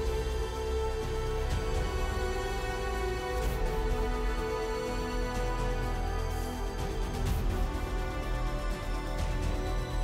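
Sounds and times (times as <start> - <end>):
instrumental music with deep bass: 0.0 - 10.0.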